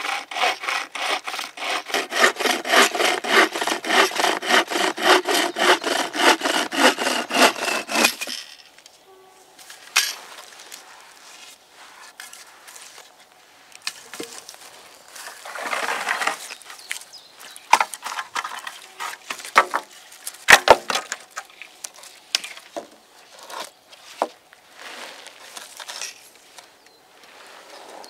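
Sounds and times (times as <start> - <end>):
rustle of dry grass: 8.9 - 17.6, 23.9 - 28.0.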